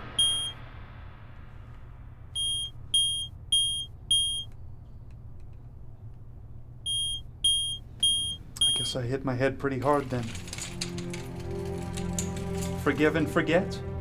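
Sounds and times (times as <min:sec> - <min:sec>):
steady low hum: 0:00.0 - 0:14.0
short high electronic beeps: 0:00.2 - 0:00.6, 0:02.4 - 0:04.5.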